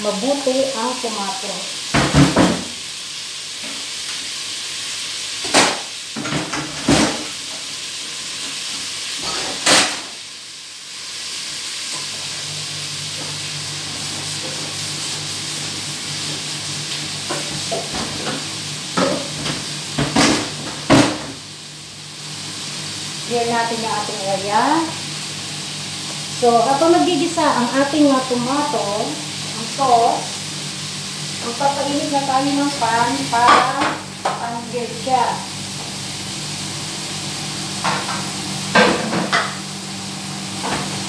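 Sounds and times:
food sizzling in a frying pan: 0.0 - 41.0
utensils knocking against pan: 37.8 - 39.6.

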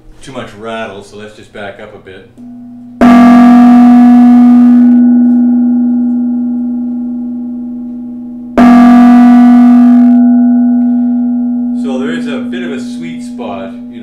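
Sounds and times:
mallet striking gong: 2.4 - 14.0
temple gong ringing: 2.4 - 14.0.

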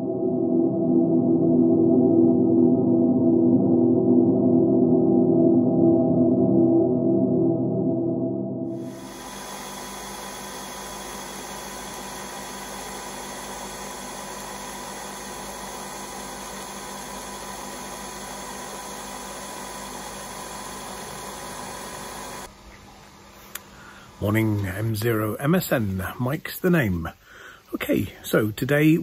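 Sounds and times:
coffee machine hissing: 8.7 - 22.5
faint hum: 8.7 - 29.0.

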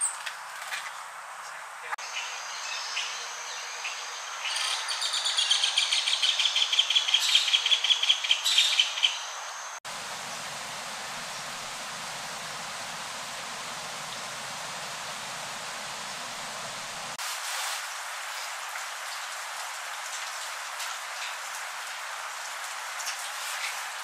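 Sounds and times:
steady rushing hiss: 8.2 - 24.0.

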